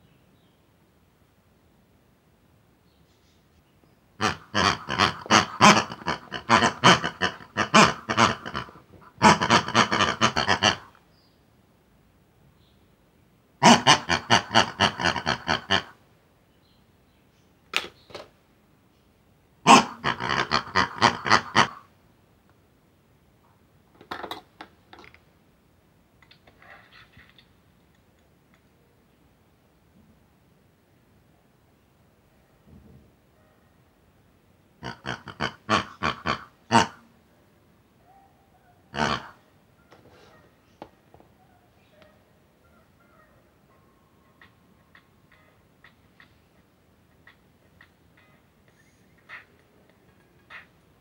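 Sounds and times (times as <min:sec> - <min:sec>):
toy pig oinking and grunting: 0:04.2 - 0:11.0, 0:13.6 - 0:16.0, 0:19.6 - 0:21.9, 0:34.8 - 0:37.1, 0:38.9 - 0:39.4, 0:44.4 - 0:50.8.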